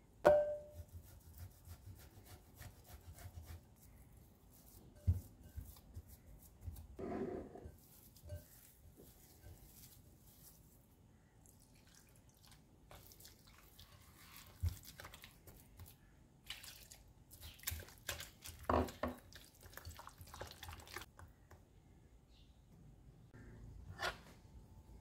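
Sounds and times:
hand squelching wet dough: 0:07.6 - 0:21.5.

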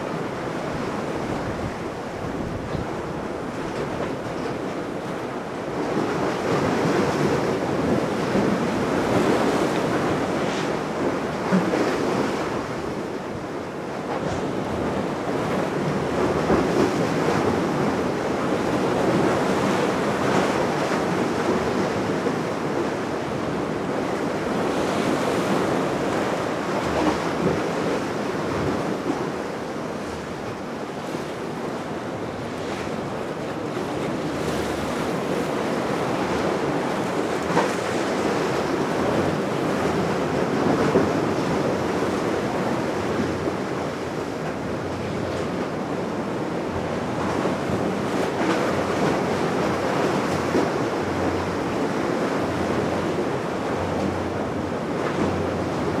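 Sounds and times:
wind buffeting microphone: 0:00.0 - 0:13.6
sea waves rushing: 0:00.0 - 0:56.0.

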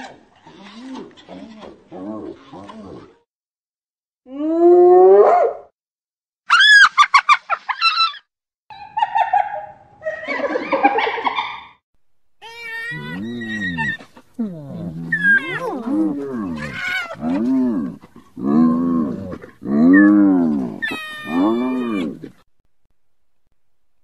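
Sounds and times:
hyenas calling: 0:12.4 - 0:22.4.

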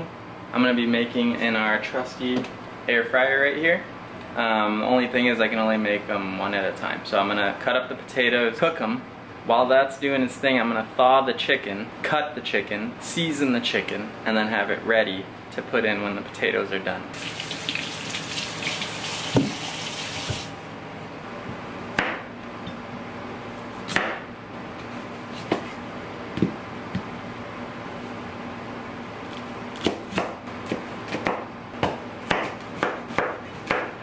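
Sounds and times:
kitchen tap running: 0:17.2 - 0:20.6
knife chopping on plastic board: 0:22.0 - 0:22.2, 0:23.9 - 0:24.2, 0:29.8 - 0:34.0.

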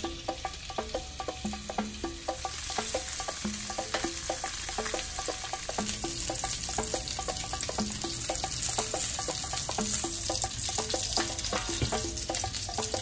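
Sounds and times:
chicken sizzling in hot oil: 0:00.0 - 0:13.0
plucked background music: 0:00.0 - 0:13.0.

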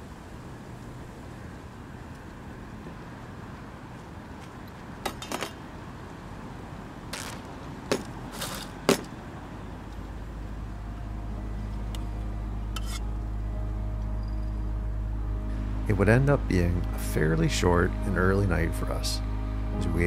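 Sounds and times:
low steady background: 0:05.6 - 0:20.0
low sustained music tone: 0:09.5 - 0:20.0.

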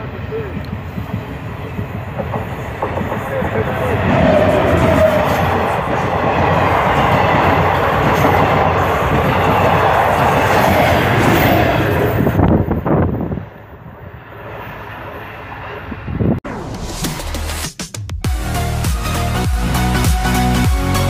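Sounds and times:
passenger train passing at speed: 0:00.0 - 0:16.6.

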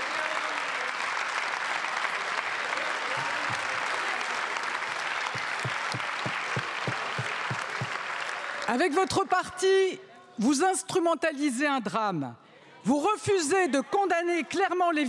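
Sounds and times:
dense clapping: 0:00.0 - 0:08.7.

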